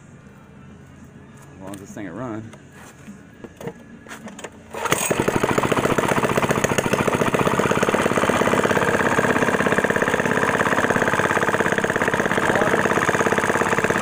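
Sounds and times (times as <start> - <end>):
engine pull-started and running: 3.6 - 14.0.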